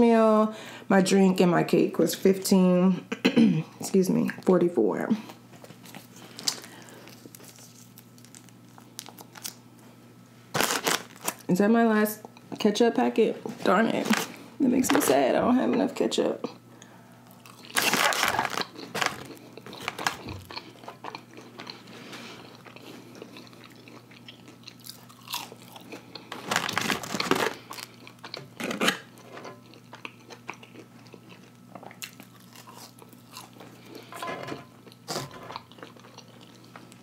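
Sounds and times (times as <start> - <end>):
crunching fried food: 5.8 - 9.8, 10.5 - 11.5, 17.3 - 34.1, 34.8 - 37.0.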